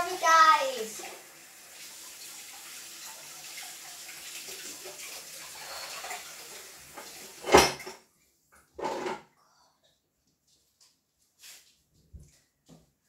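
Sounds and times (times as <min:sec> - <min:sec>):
tap water running into basin: 0:00.0 - 0:08.0.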